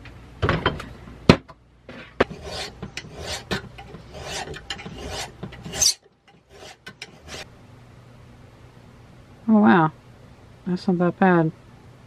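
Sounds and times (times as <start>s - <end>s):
light scrapes: 2.0s - 7.5s
hand file rasping on metal: 2.2s - 7.5s.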